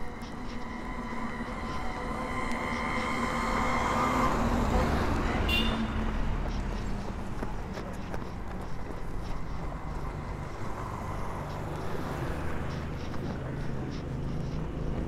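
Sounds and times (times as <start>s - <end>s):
vehicle engine passing by: 0.1s - 8.3s.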